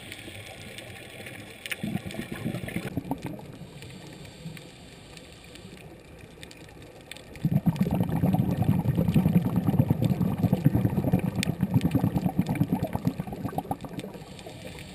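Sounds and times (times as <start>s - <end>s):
faint underwater hum: 0.0s - 14.9s
bubbles gurgling underwater: 1.6s - 3.6s, 7.3s - 14.4s.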